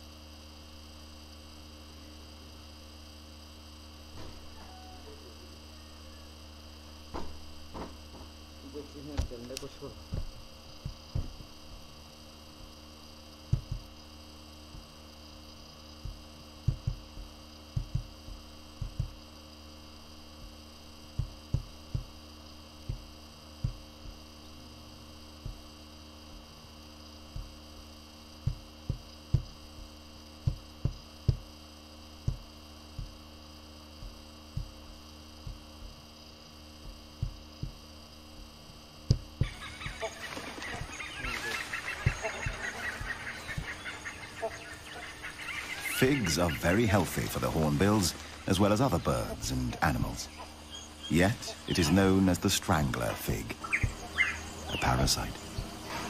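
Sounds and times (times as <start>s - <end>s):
electrical hum: 0.0s - 56.0s
dull low thumps: 10.0s - 12.8s, 13.4s - 14.0s, 16.0s - 19.3s, 20.3s - 22.2s, 22.8s - 24.3s, 25.4s - 25.7s, 27.3s - 27.6s, 28.4s - 31.6s, 32.2s - 33.3s, 34.0s - 36.0s, 36.8s - 39.5s.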